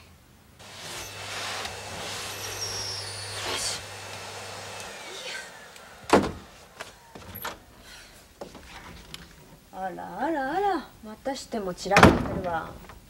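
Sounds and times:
vacuum cleaner motor hum: 0:00.6 - 0:07.4
loud thump: 0:06.0 - 0:07.3.

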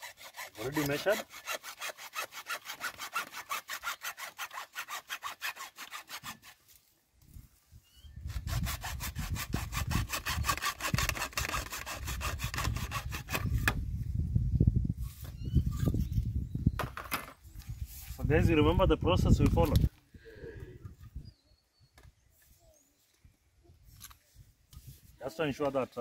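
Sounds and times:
hacksaw cutting plastic pipe: 0:00.0 - 0:06.6, 0:08.3 - 0:13.8.

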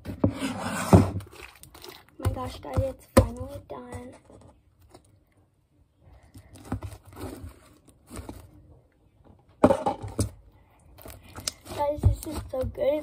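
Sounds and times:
slime squishing and tearing: 0:01.2 - 0:02.2.

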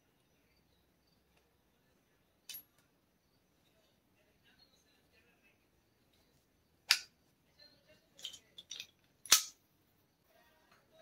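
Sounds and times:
pliers snapping on metal: 0:06.9 - 0:07.1, 0:08.2 - 0:09.6.

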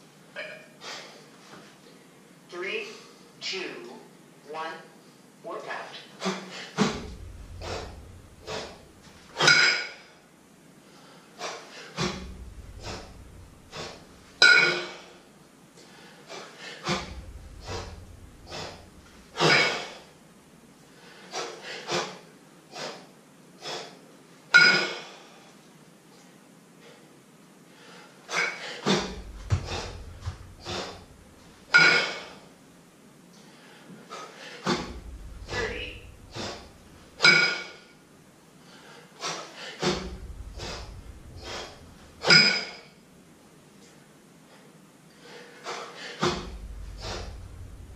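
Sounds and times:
man breathing hard: 0:00.8 - 0:01.3, 0:06.2 - 0:09.5, 0:10.8 - 0:20.2, 0:20.8 - 0:24.0, 0:26.8 - 0:32.5, 0:33.4 - 0:37.8, 0:38.6 - 0:42.4, 0:45.1 - 0:47.9.

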